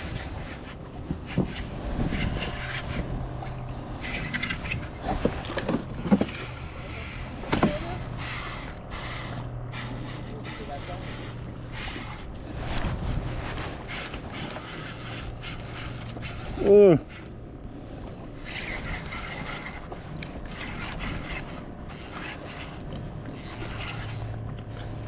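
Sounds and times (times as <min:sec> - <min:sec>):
fishing reel gears whirring: 0:00.0 - 0:12.8, 0:13.8 - 0:25.0.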